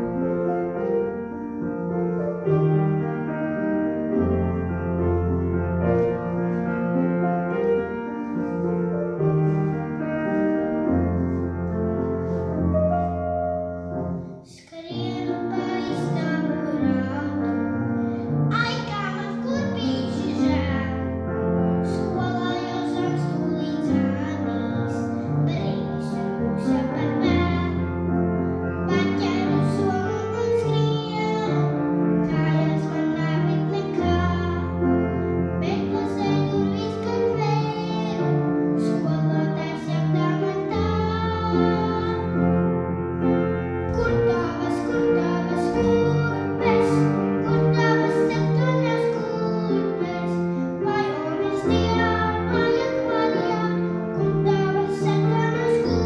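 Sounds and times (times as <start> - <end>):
girl singing: 0.0 - 56.0
grand piano playing: 0.0 - 56.0.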